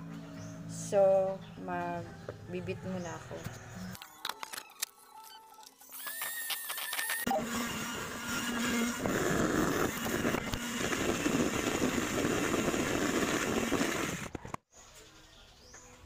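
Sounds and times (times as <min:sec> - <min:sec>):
electric hand mixer running: 0:05.9 - 0:14.6.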